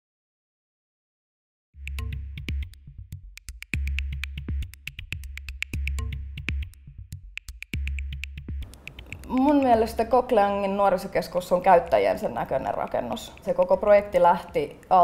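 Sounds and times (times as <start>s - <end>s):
electronic music with drum machine: 1.8s - 10.2s
crisp clicking percussion: 1.8s - 10.7s, 11.4s - 15.0s
deep bass note: 3.8s - 8.7s.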